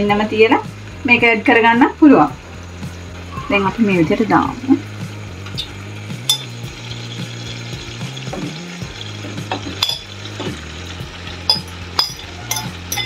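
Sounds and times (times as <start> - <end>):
food sizzling in a pan: 0.0 - 13.0
tongs clicking on pan: 5.6 - 6.6, 11.5 - 13.0.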